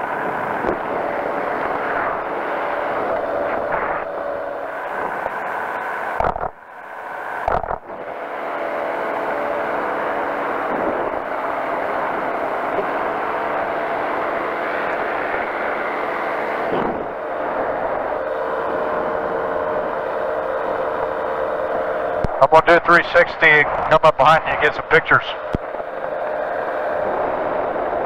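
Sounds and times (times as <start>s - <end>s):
wind rush: 0.0s - 5.6s
engine and propeller droning: 0.0s - 28.0s.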